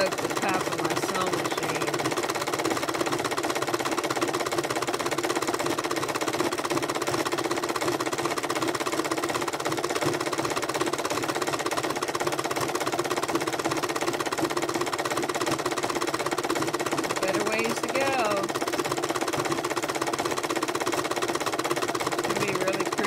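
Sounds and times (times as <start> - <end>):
sewing machine stitching: 0.0 - 23.0.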